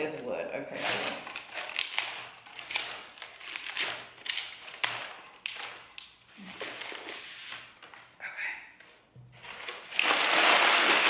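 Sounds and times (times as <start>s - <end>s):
packaging wrap crinkling: 0.9s - 8.1s.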